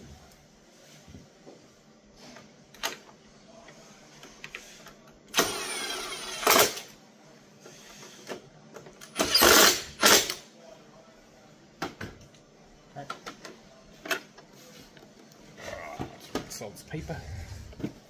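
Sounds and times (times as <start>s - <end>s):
cordless drill driving screws: 5.4s - 6.8s, 9.1s - 10.4s.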